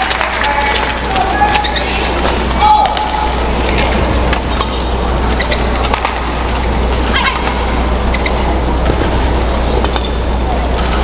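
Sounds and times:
arena hum: 0.0s - 11.0s
shoes squeaking on court: 0.4s - 11.0s
rackets striking shuttlecock: 2.2s - 9.0s.

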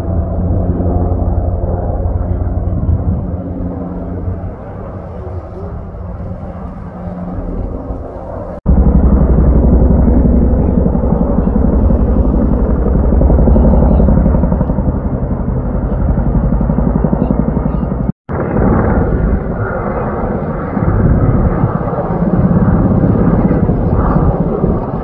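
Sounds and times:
helicopter rotor beating: 0.0s - 25.0s.

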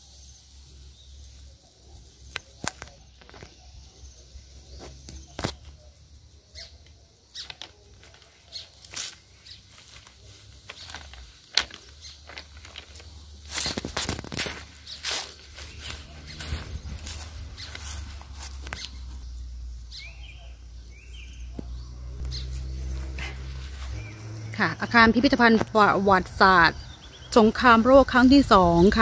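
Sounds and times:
footsteps scuffing and clicking: 7.4s - 19.2s.

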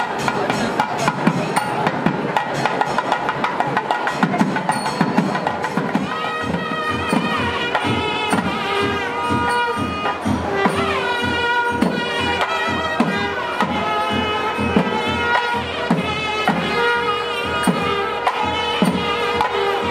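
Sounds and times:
steady drum strokes: 0.0s - 19.9s
reedy wind instrument melody: 4.5s - 19.9s.

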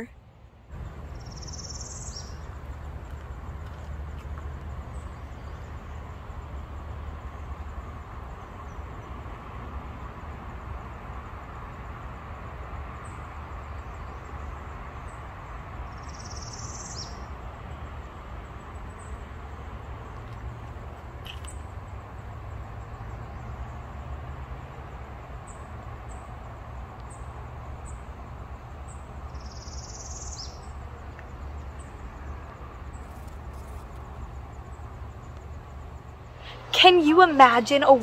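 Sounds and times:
high bird chirp: 1.1s - 2.4s, 29.3s - 30.8s.

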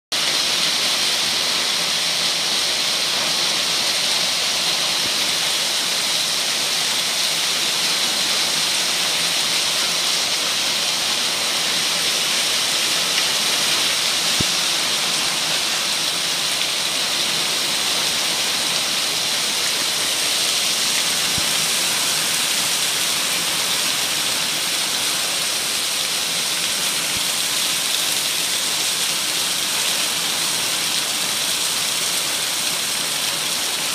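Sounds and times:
heavy rain and hail: 0.2s - 33.9s.

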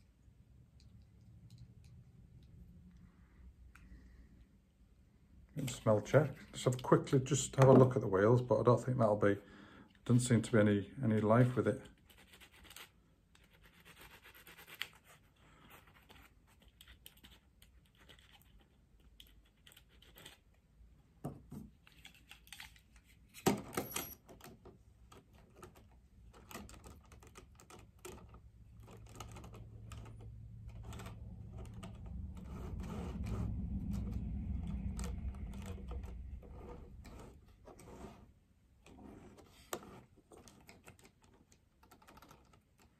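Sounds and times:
low rumble: 29.6s - 37.8s.

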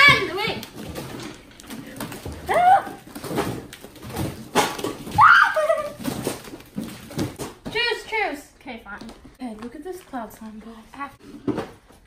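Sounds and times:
girls shrieking and giggling: 5.2s - 6.0s.

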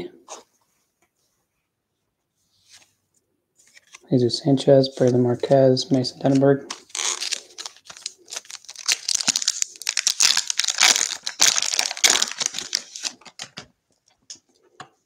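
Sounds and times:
foil wrapper tearing and crinkling: 6.7s - 13.6s.

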